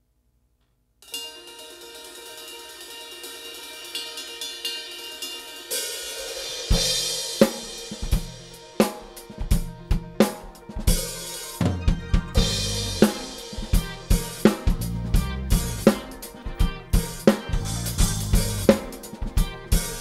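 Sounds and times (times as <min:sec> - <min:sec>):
drum kit playing: 0:01.0 - 0:20.0
cymbal swell: 0:01.1 - 0:11.6
backing track sustained tones: 0:01.2 - 0:20.0.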